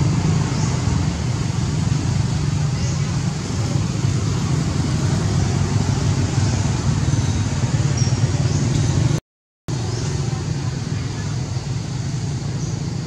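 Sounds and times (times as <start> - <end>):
low rumbling noise: 0.0 - 13.0.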